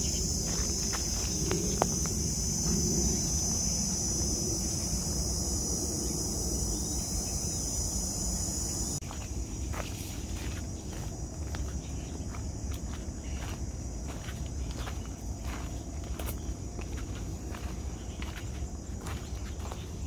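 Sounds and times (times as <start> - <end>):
footsteps on dirt trail: 0.0 - 4.9, 9.0 - 20.0
cicadas buzzing: 0.0 - 20.0.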